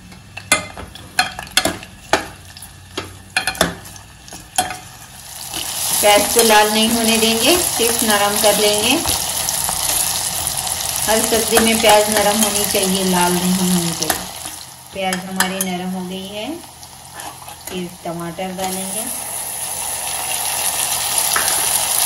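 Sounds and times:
spoon knocking against pot: 0:00.1 - 0:03.9
onions sizzling in oil: 0:00.6 - 0:22.0.

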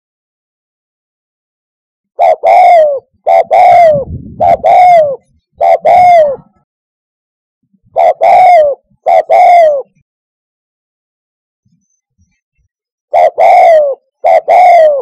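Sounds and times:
dove cooing: 0:02.2 - 0:06.6, 0:07.9 - 0:10.0, 0:13.1 - 0:15.0.

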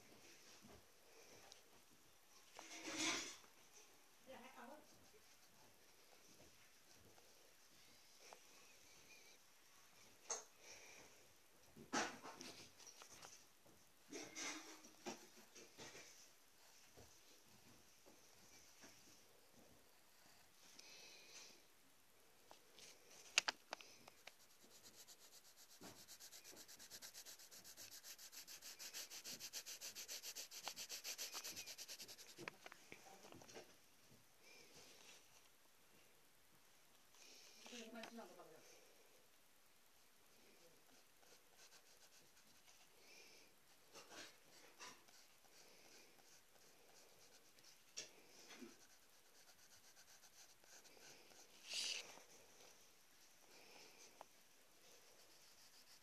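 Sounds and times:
pencil scratching on paper: 0:24.1 - 0:32.5, 0:40.9 - 0:42.9, 0:44.0 - 0:52.3, 0:55.0 - 0:56.0.

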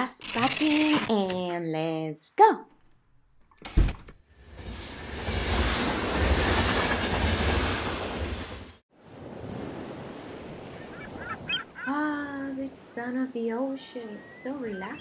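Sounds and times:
steam rushing: 0:04.4 - 0:08.8.

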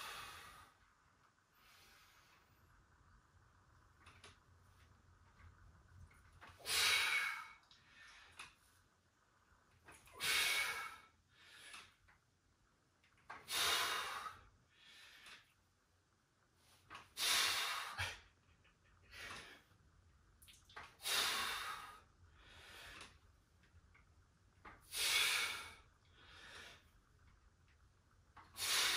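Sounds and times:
man breathing hard: 0:10.1 - 0:12.0, 0:13.4 - 0:15.5, 0:21.0 - 0:23.2, 0:24.8 - 0:26.9.

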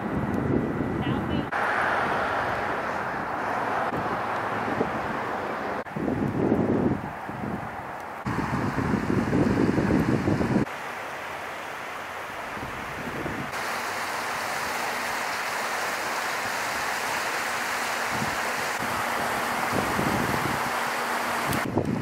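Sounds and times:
wind buffeting microphone: 0:00.0 - 0:10.7, 0:12.5 - 0:13.6, 0:18.0 - 0:22.0
stream rushing over rocks: 0:08.2 - 0:22.0.

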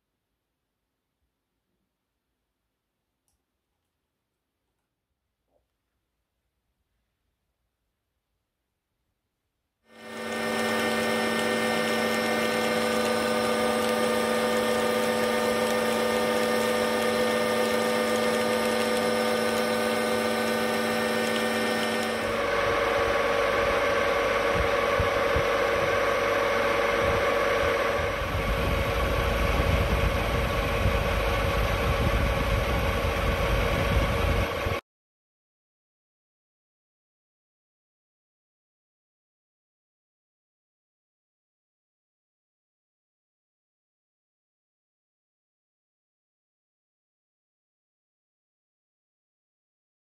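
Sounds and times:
metal lathe humming: 0:09.9 - 0:33.6.

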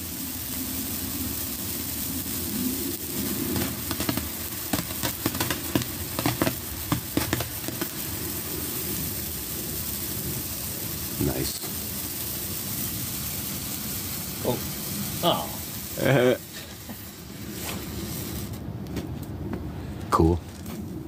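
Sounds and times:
sparkler hissing: 0:00.0 - 0:18.8
sparkler crackling pops: 0:00.0 - 0:19.0.

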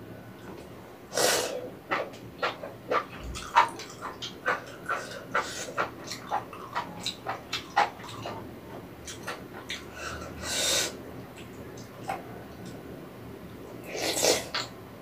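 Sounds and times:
airy mouth sound: 0:01.1 - 0:06.4, 0:13.8 - 0:14.7
wet chewing and mouth smacks: 0:01.9 - 0:10.3.

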